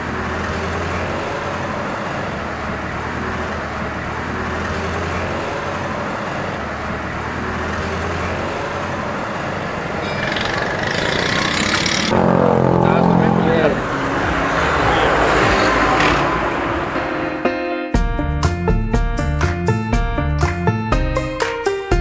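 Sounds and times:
low engine hum: 0.0 - 17.2
roadside traffic noise: 0.0 - 17.7
loud wavering pitch sound: 10.0 - 16.0.

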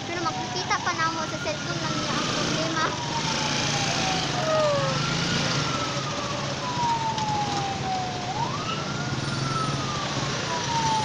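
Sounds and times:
engines idling rumble: 0.0 - 2.0
emergency vehicle siren wailing: 0.0 - 11.0.

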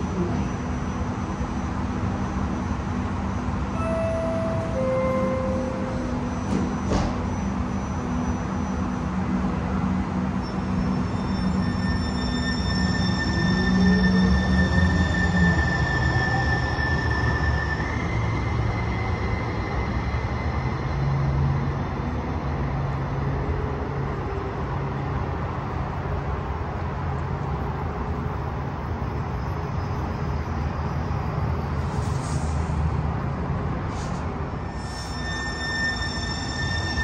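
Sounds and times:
train rumbling: 0.0 - 37.0
faint wheel squeal: 10.4 - 21.4, 33.9 - 37.0.

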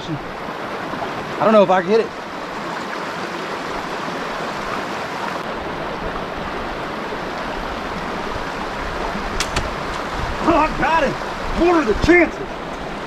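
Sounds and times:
river water rushing over rocks: 0.0 - 13.0.

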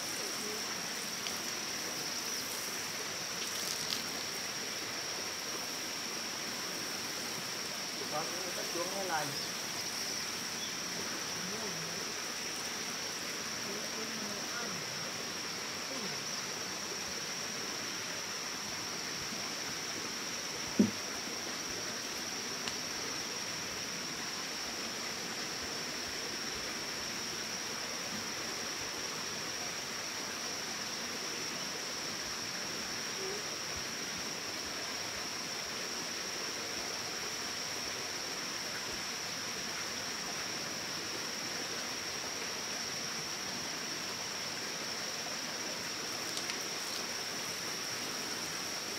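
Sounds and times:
constant hiss: 0.0 - 48.9
sharp knock: 20.8 - 21.0.

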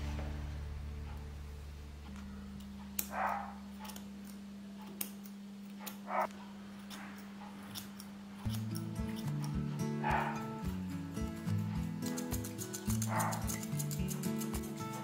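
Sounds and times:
soft background music: 0.0 - 4.0, 8.5 - 15.0
scissors snipping: 2.1 - 15.0
dog breathy noises: 10.0 - 10.5.

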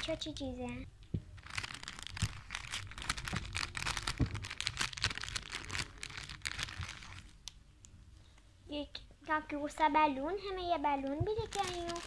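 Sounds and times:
plastic packet crinkling: 0.0 - 7.6, 11.0 - 12.0.

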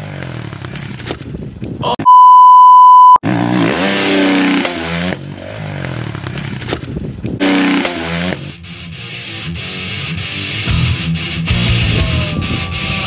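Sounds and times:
dirt bike engine revving: 0.0 - 1.1, 3.2 - 9.0
loud electronic beep: 2.0 - 3.2.

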